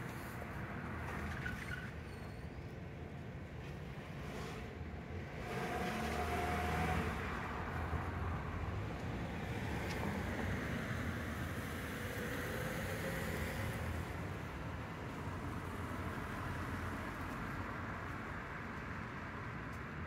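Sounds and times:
car passing on street: 4.1 - 20.0.

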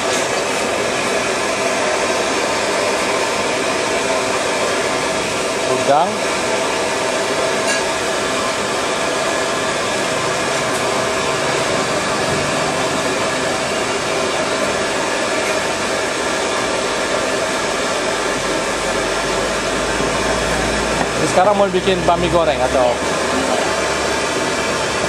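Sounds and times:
loud rushing noise: 8.0 - 25.0.

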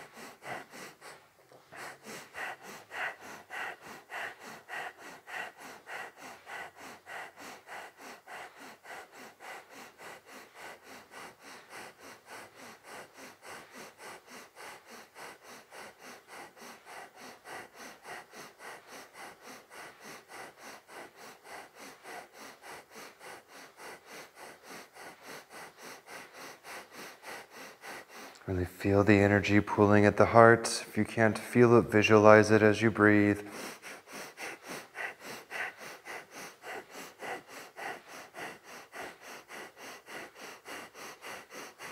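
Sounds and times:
rapid forceful nasal breathing: 0.0 - 41.9.

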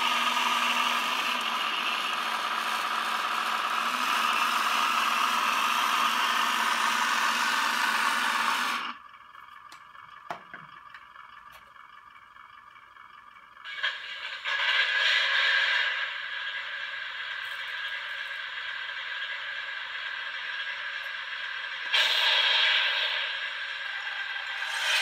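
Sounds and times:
small electric motors whirring: 23.9 - 25.0.

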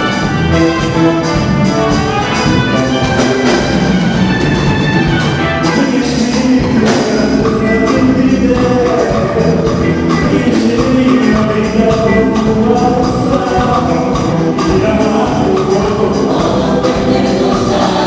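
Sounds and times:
live gospel band playing: 0.0 - 18.0
choir singing: 12.8 - 18.0.

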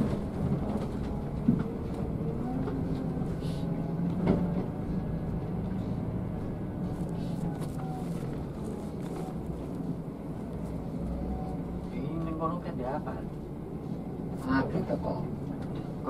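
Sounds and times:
bus body rattling and knocking: 0.0 - 10.4, 14.4 - 16.0
bus diesel engine humming: 0.0 - 16.0.

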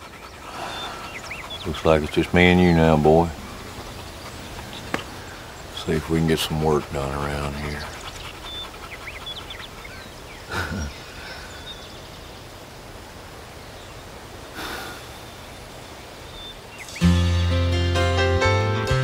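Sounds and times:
animal snorts: 0.0 - 5.5, 6.8 - 11.0, 14.5 - 15.3
faint bird chirps: 0.0 - 12.6, 13.6 - 17.1.

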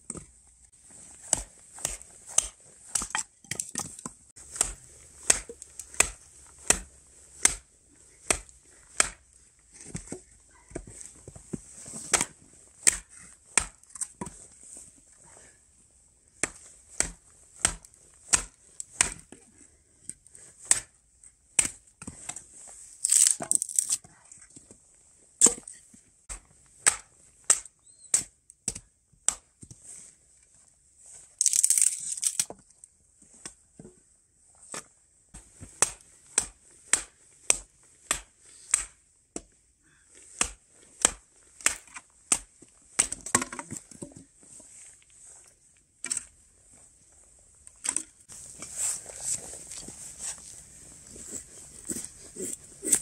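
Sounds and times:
sticks cracking: 1.2 - 9.2, 23.0 - 24.0, 31.4 - 32.5, 35.8 - 39.0, 40.4 - 43.7.

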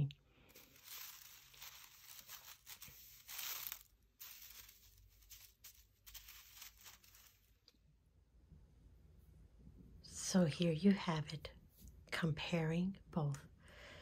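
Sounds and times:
dry spaghetti rustling: 0.0 - 7.7.

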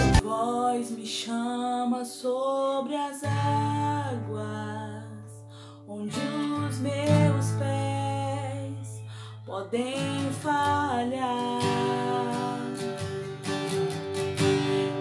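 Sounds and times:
acoustic guitar strumming: 0.0 - 0.2, 10.0 - 15.0
woman singing: 0.0 - 13.6.

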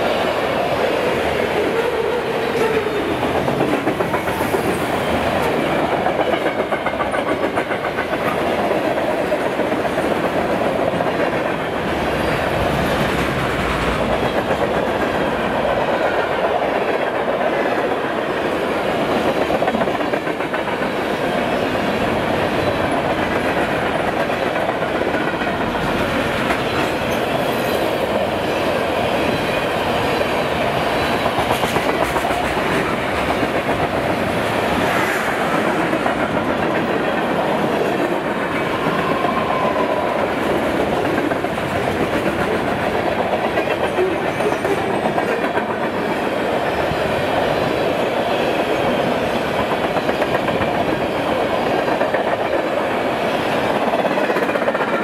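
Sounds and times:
train wheels rumbling on rail: 0.0 - 55.0
wheels clickety-clack on rail joints: 0.0 - 55.0.

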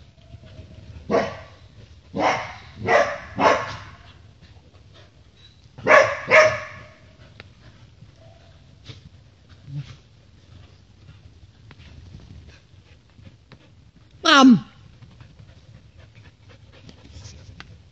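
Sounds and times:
dogs barking: 1.1 - 4.1, 5.8 - 7.0.

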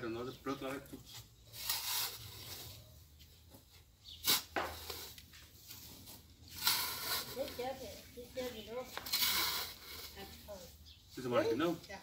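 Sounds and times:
shovel scraping in sandy soil: 1.0 - 3.0, 4.0 - 11.5.

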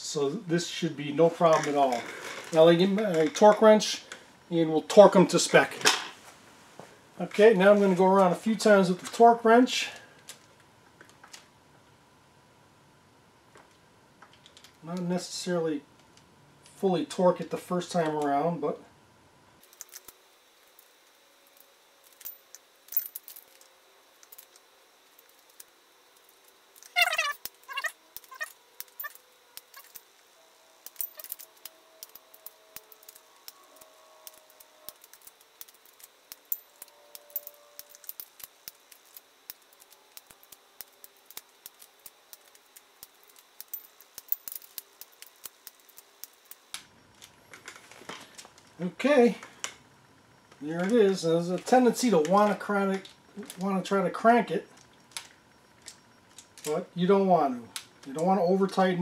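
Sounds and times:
torque wrench ratcheting clicks: 34.2 - 46.6.

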